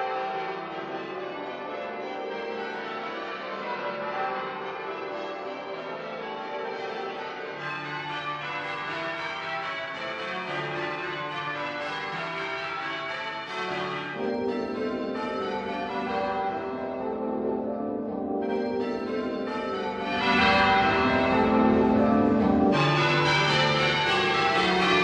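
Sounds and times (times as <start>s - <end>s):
church tower bells ringing: 0.0s - 25.0s
handbells ringing: 20.1s - 25.0s.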